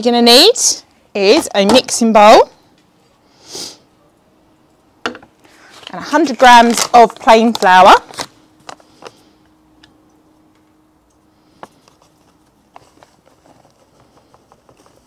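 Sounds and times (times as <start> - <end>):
paper bag crinkling: 5.6 - 9.0.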